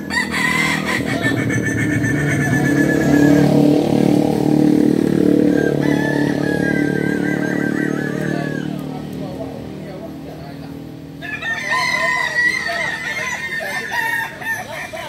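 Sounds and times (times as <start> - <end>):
roosters crowing: 0.0 - 9.1, 11.1 - 15.0
motorcycle engine running: 0.0 - 11.2.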